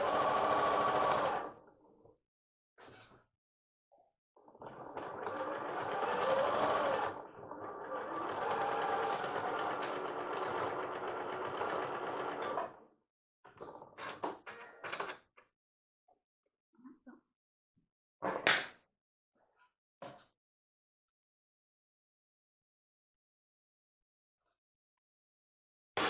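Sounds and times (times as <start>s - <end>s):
sewing machine stitching: 0.0s - 1.5s, 4.6s - 12.7s.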